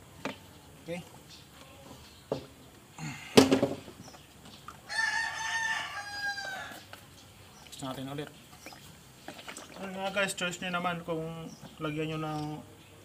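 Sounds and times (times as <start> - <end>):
rooster crowing: 4.9 - 6.9.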